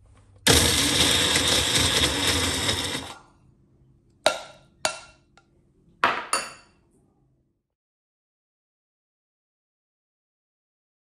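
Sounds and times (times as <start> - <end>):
small blender running: 0.5 - 3.3
glass bowls clinking on counter: 6.0 - 6.8.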